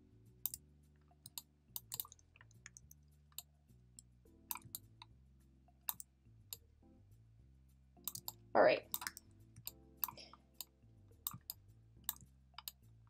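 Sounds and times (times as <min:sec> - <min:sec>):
faint background music: 0:00.0 - 0:13.0
mouse and keyboard clicks: 0:01.2 - 0:03.5, 0:04.5 - 0:04.9, 0:05.9 - 0:06.1, 0:08.0 - 0:12.8.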